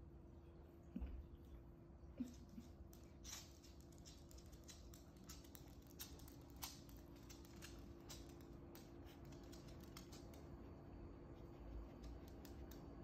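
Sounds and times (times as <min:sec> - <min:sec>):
faint steady hum: 0:00.0 - 0:13.0
dog claws clicking on wooden floor: 0:02.9 - 0:10.6, 0:11.9 - 0:13.0.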